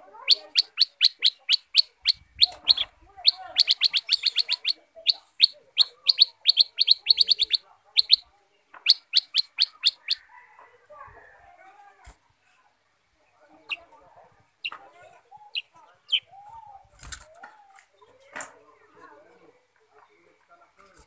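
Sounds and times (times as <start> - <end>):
bird chirping rapidly: 0.0 - 10.2, 15.4 - 16.4.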